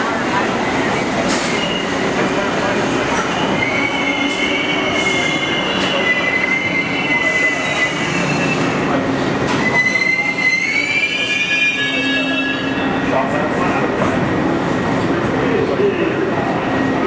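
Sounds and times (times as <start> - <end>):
subway train wheels squealing: 0.0 - 17.0.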